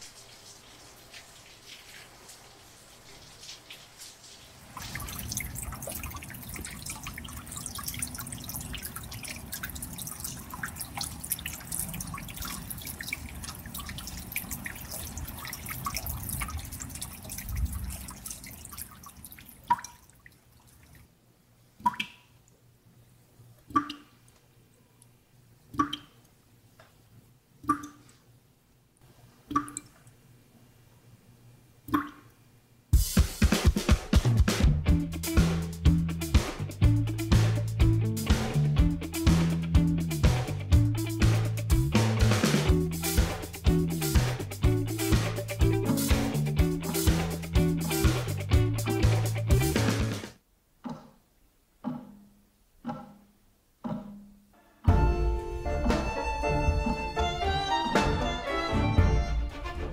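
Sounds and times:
water pattering like rain: 0.0s - 21.2s, 21.8s - 22.7s, 23.6s - 25.1s, 34.2s - 51.1s
water drops plopping: 4.8s - 21.0s, 21.8s - 22.3s, 23.7s - 24.1s, 25.7s - 26.2s, 27.6s - 28.1s, 29.5s - 30.0s, 31.9s - 32.3s.

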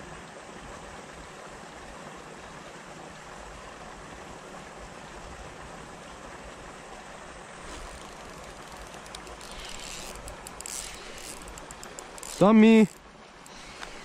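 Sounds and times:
brief rustle: 7.6s - 14.0s
short clicks: 7.8s - 14.0s.

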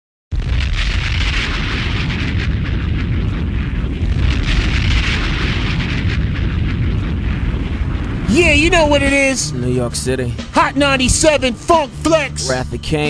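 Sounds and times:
explosion rumbling roar with hiss: 0.3s - 9.4s.

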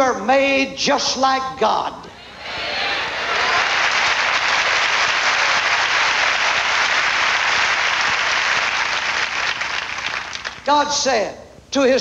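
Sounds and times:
crowd applauding: 2.3s - 10.7s.

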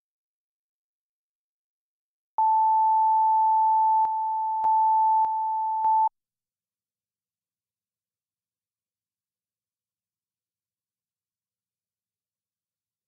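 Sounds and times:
high steady line-up tone beep: 2.4s - 6.1s.

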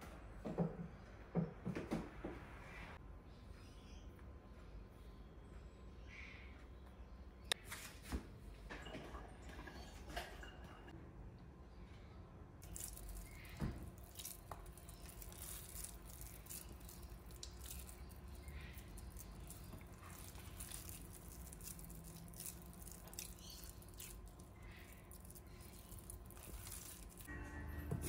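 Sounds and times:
wet squishing of meat mixture: 12.6s - 27.3s.

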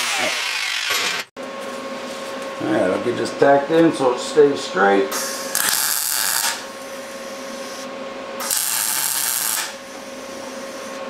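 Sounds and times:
steady welder hum: 0.0s - 11.0s
welder tack welds crackling: 5.5s - 6.7s, 8.4s - 9.8s.

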